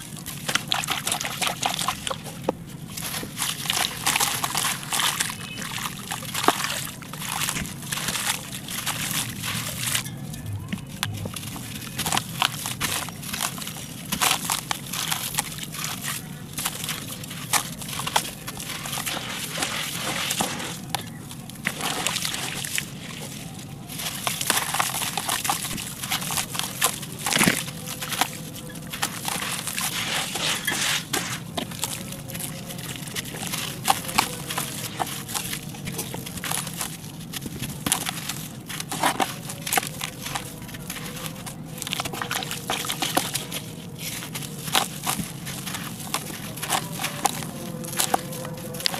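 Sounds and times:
concrete crunching by hand: 0.0s - 48.9s
sharp concrete crack: 24.0s - 48.9s.

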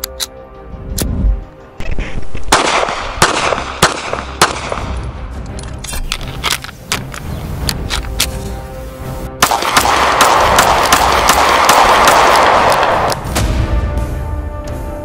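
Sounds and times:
pistol shots: 2.5s - 4.9s, 9.4s - 13.2s.

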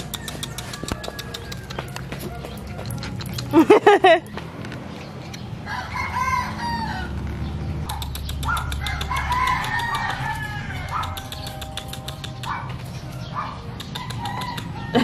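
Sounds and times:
rooster crowing: 0.0s - 2.8s, 5.6s - 7.3s, 8.8s - 11.2s, 14.2s - 15.0s.

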